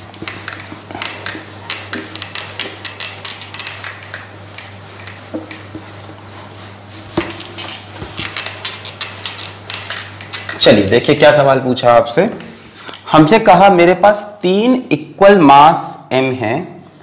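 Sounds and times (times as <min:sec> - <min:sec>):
duster wiping a whiteboard: 0:00.0 - 0:11.5.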